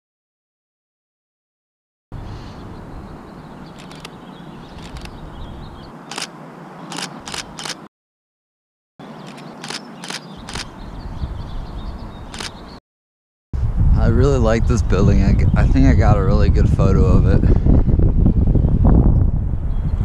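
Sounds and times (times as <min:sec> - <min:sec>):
camera shutter clicks: 0:03.8 - 0:04.1, 0:04.8 - 0:05.2, 0:06.1 - 0:06.3, 0:06.9 - 0:07.9, 0:09.2 - 0:10.7, 0:12.3 - 0:12.6.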